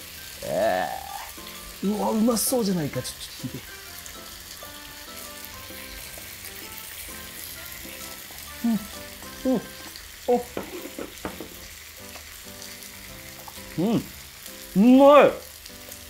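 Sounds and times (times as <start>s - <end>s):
beef sizzling on a grill: 0.0s - 16.0s
person humming while chewing: 7.7s - 11.6s.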